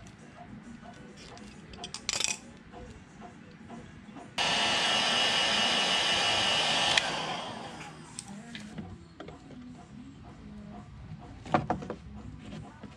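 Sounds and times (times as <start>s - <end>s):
clatter of tools and wire: 0.9s - 2.5s
heat gun fan hissing: 4.4s - 8.7s.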